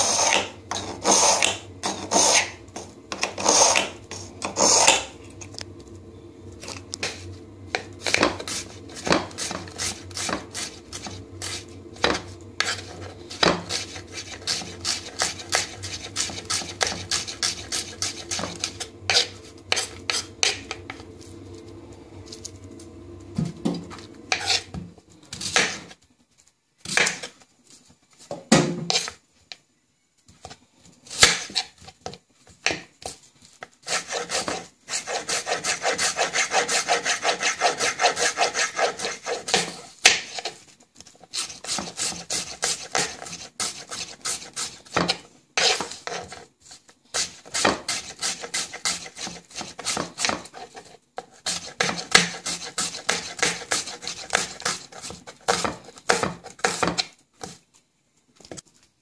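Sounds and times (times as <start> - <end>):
knife chopping onion on board: 41.4 - 46.2, 47.2 - 50.6, 51.4 - 57.6.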